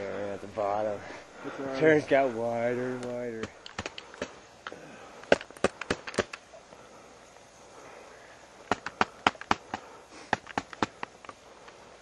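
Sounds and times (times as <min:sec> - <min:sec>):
sharp clicks: 0:03.0 - 0:06.4, 0:08.6 - 0:11.8.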